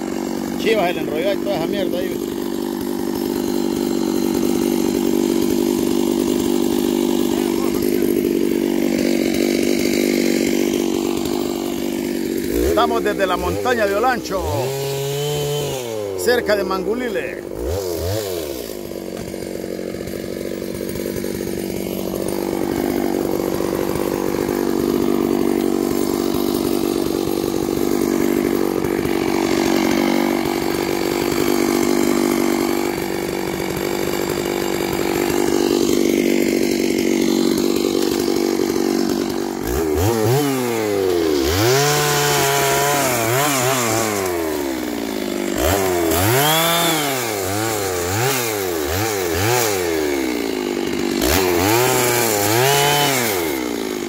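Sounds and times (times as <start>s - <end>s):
chainsaw running and revving: 0.0s - 54.0s.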